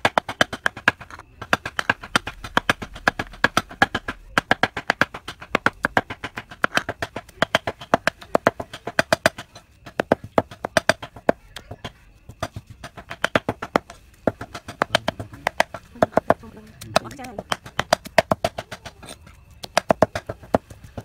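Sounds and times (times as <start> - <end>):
knife chopping on wooden board: 12.4 - 21.0.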